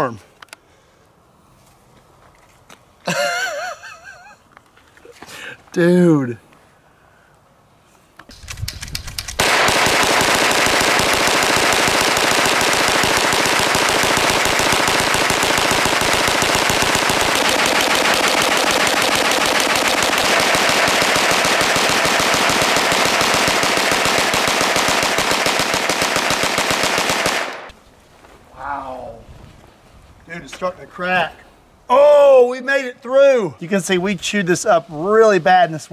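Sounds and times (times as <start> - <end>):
gatling gun firing rapidly: 9.3 - 27.6.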